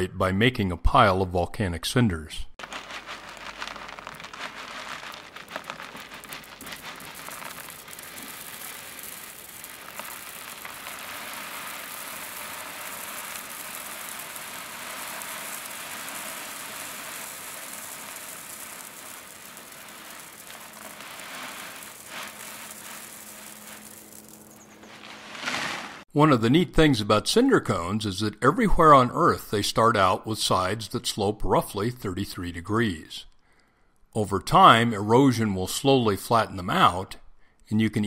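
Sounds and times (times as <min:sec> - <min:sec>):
small rocks pouring and rattling: 0:02.6 - 0:26.1.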